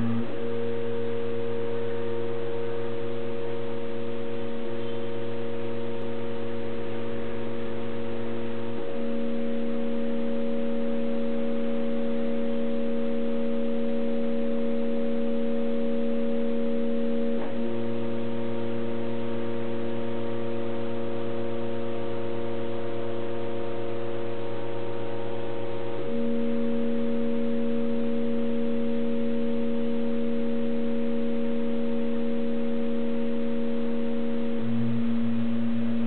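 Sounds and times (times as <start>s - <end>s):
stepper motors whining: 0.0s - 3.0s.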